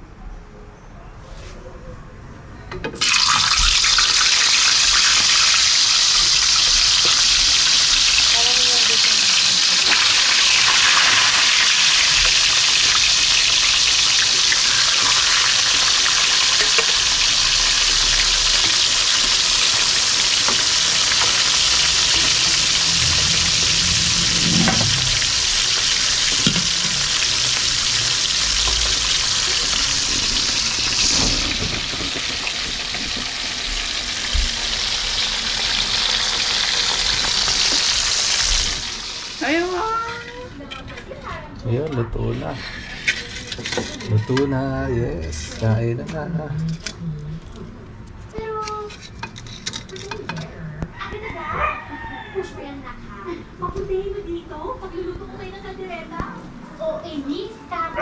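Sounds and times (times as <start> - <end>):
food sizzling in hot oil: 3.0 - 40.5.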